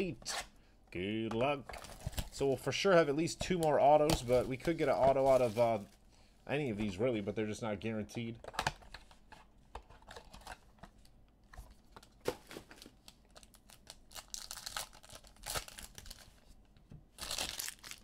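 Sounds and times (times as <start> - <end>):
foil wrapper tearing and crinkling: 12.7 - 16.4, 17.2 - 18.0.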